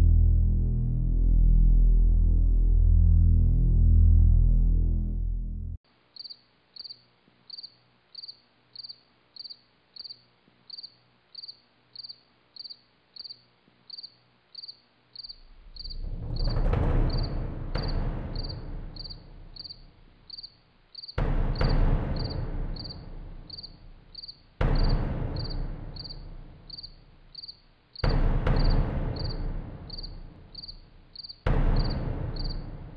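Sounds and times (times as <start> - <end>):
loud low rushing noise: 0.0 - 5.8, 15.4 - 20.2
crickets chirping: 6.1 - 32.8.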